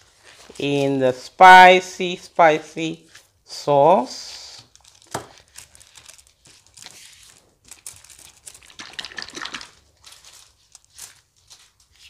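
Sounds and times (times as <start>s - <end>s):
plastic gloves and foil crinkling: 0.0s - 1.0s, 4.4s - 12.0s.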